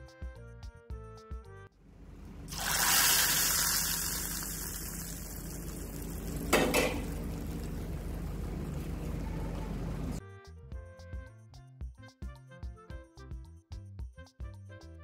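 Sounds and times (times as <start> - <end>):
low hum: 1.8 - 10.2.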